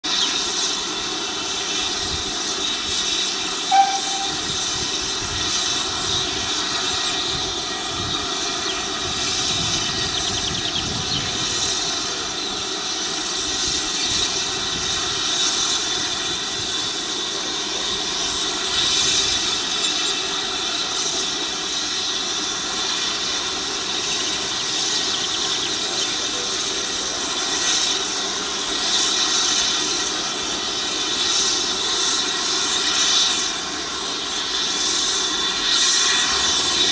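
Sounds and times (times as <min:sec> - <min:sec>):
drone propellers whining: 0:03.6 - 0:05.0, 0:34.2 - 0:36.9.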